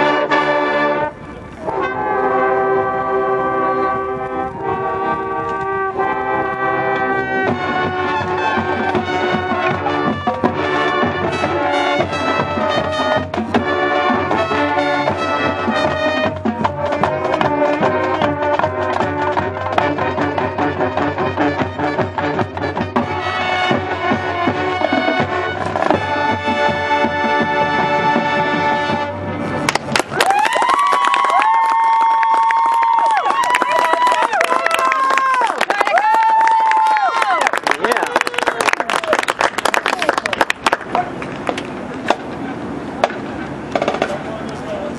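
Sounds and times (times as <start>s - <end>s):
marching band brass: 0.0s - 44.9s
drum strikes: 7.4s - 28.7s, 43.0s - 44.2s.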